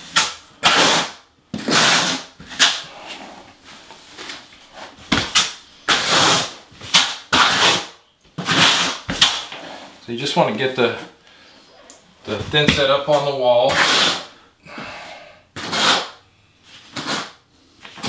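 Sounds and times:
trowel scraping mortar: 0.0 - 3.5, 4.7 - 10.0, 13.1 - 14.4, 15.6 - 16.2, 16.8 - 17.4.

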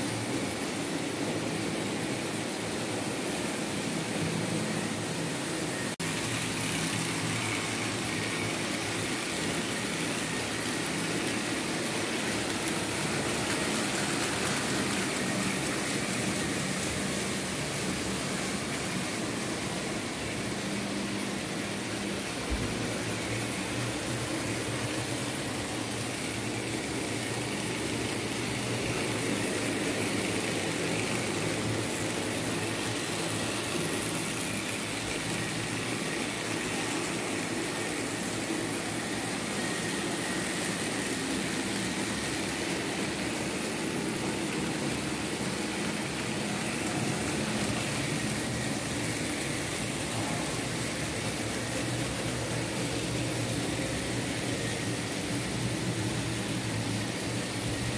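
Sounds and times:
model train running on track: 0.0 - 57.9.

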